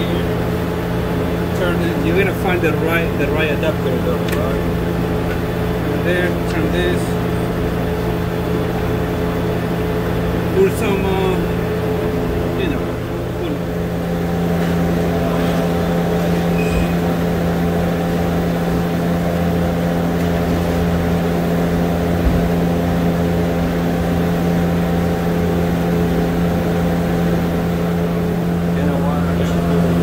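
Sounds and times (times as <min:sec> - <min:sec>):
mechanical drone with tones: 0:00.0 - 0:30.0.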